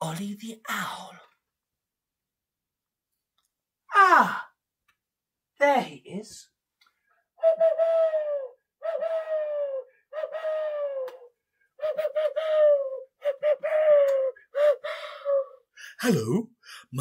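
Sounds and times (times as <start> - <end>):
hand-blown owl hoots: 7.4 - 15.8.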